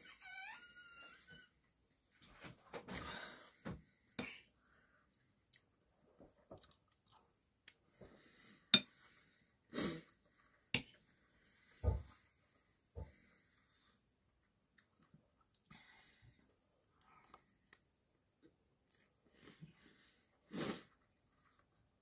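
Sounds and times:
breathing: 2.9 - 5.2, 7.9 - 9.6, 11.3 - 14.0, 15.7 - 16.4
chewing food: 6.4 - 7.9, 14.6 - 15.7, 16.4 - 19.1.

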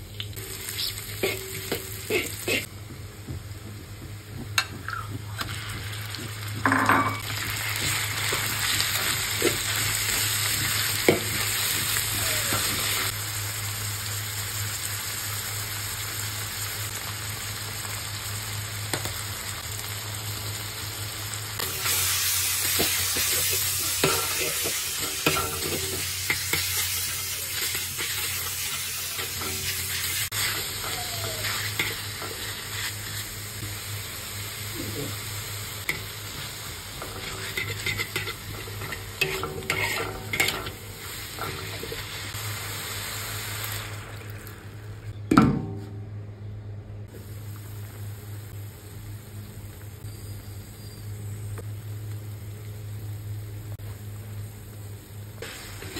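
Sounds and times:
meat sizzling in hot oil: 0.0 - 45.0, 47.1 - 55.9
metal spatula scraping wok: 22.6 - 33.3, 37.0 - 42.2.

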